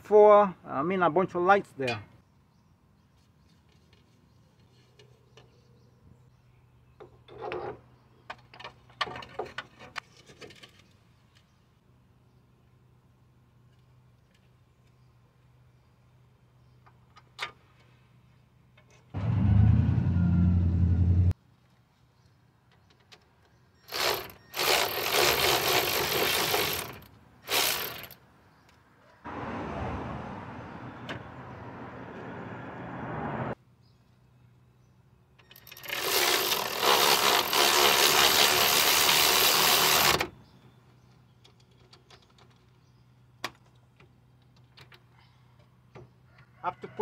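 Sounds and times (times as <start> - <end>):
impact wrench bursts: 23.9 - 28.2, 35.6 - 40.3.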